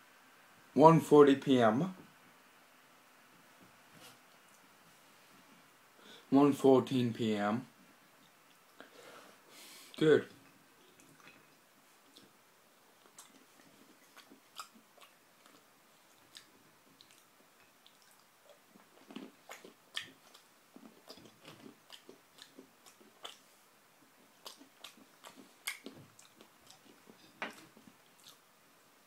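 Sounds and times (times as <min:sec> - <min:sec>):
person chewing bread: 0:10.8 - 0:28.5.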